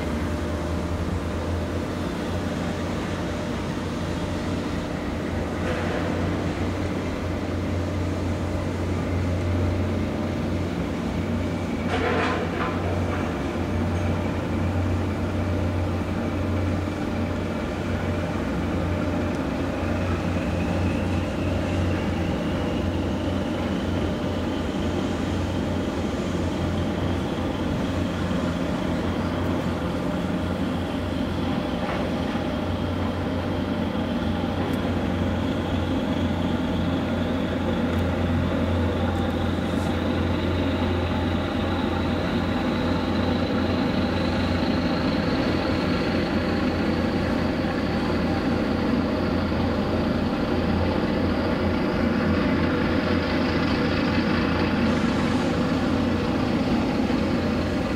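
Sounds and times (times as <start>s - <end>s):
ship diesel engines humming: 0.0s - 57.9s.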